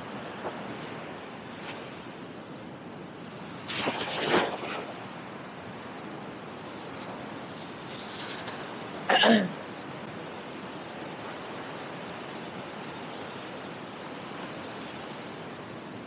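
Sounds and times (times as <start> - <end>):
small waves breaking: 0.0 - 16.0.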